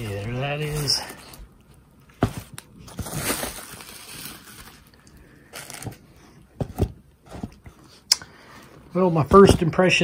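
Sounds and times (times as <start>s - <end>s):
bubble wrap crinkling: 0.0s - 6.2s.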